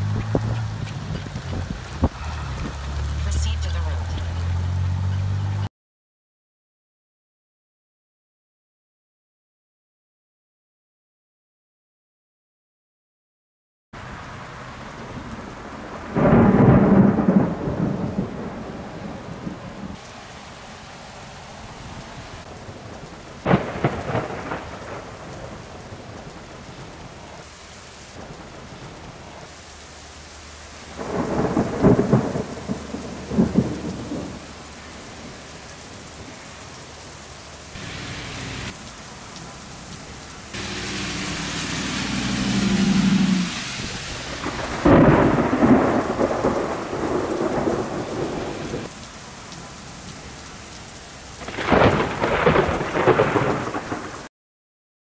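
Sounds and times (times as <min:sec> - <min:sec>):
steady rain: 0:00.0 - 0:05.7, 0:14.0 - 0:54.3
thunder rolling: 0:15.0 - 0:20.0, 0:22.5 - 0:26.8, 0:30.9 - 0:36.3, 0:37.7 - 0:38.8, 0:40.5 - 0:48.9, 0:51.4 - 0:54.3.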